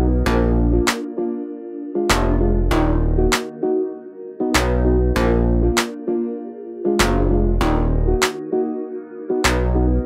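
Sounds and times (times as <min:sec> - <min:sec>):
deep bass: 0:00.0 - 0:00.9, 0:02.1 - 0:03.3, 0:04.6 - 0:05.8, 0:07.0 - 0:08.2
synth chords: 0:00.0 - 0:10.0.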